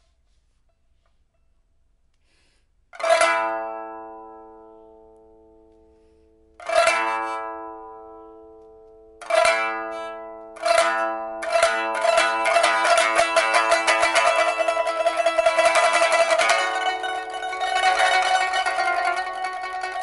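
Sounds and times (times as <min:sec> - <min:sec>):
pipa strummed chords: 0:06.6 - 0:20.0.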